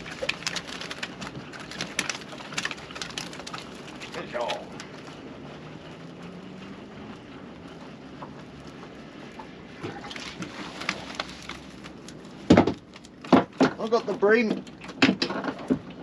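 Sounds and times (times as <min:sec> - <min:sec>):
fish splashing: 0:00.0 - 0:06.7, 0:09.3 - 0:13.6
water and wind hiss: 0:00.0 - 0:15.1
faint rising hum: 0:02.8 - 0:12.4
knocks on boat: 0:12.5 - 0:13.8.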